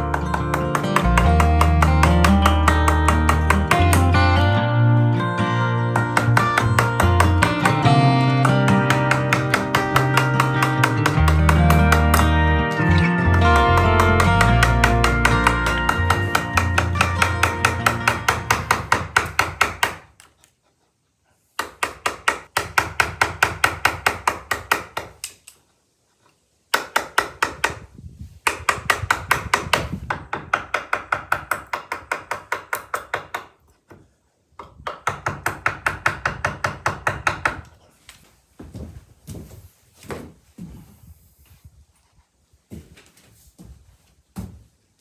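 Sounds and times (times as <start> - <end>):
mallet striking chisel: 0.1 - 4.2, 6.0 - 20.0, 28.5 - 33.5.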